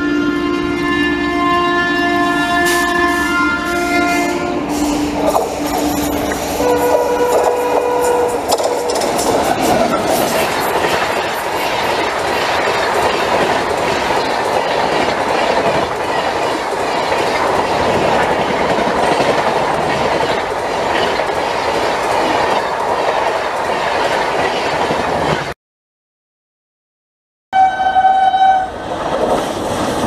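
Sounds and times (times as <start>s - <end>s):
train coaches rushing past: 2.5s - 25.6s, 28.7s - 30.0s
wheels rumbling on track: 2.6s - 25.5s.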